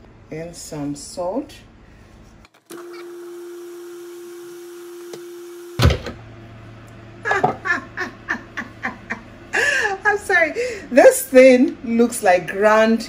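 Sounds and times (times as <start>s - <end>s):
food processor motor running: 2.6s - 6.0s
thump: 5.8s - 6.2s.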